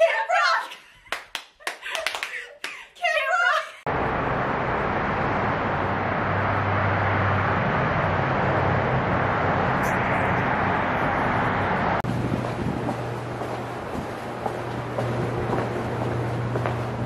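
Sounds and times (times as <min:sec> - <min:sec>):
outdoor background noise: 0:03.0 - 0:17.0
low hum: 0:03.9 - 0:17.0.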